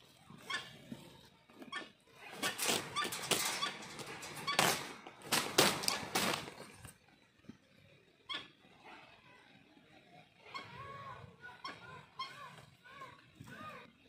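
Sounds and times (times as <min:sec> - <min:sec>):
wings flapping and scuffling: 0:00.4 - 0:07.0.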